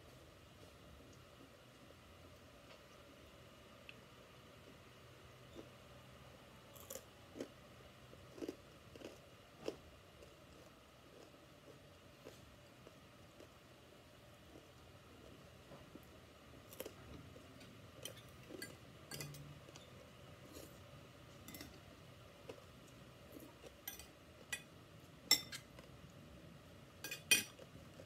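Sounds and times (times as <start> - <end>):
cutlery clinking on dishes: 18.0 - 19.5, 21.5 - 21.8, 23.8 - 24.7, 25.3 - 25.7, 27.0 - 27.6.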